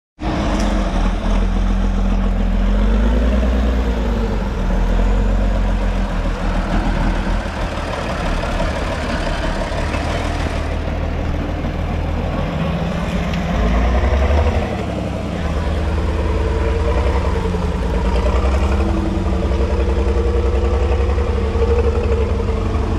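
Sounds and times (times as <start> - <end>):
diesel truck engine under load: 0.2 - 22.9.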